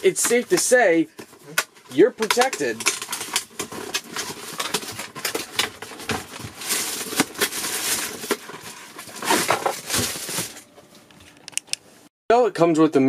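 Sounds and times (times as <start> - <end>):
cardboard rustling: 0.0 - 11.4.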